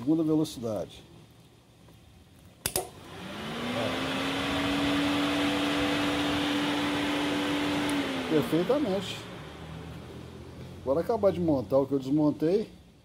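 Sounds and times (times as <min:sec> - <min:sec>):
radiator cooling fan whining: 0:02.6 - 0:13.0.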